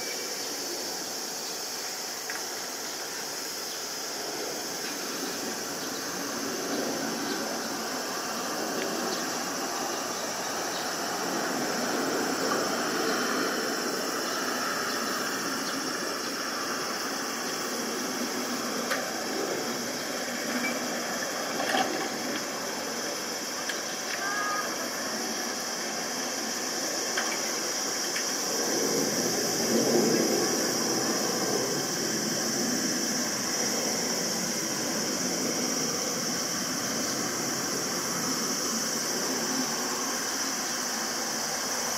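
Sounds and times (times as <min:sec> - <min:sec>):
distant jet engines rushing: 0:00.2 - 0:41.9.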